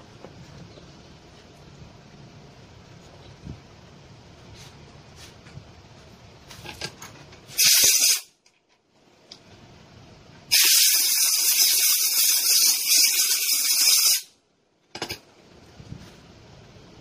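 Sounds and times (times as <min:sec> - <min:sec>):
pressurised gas hissing: 0:07.5 - 0:08.3, 0:10.5 - 0:14.3.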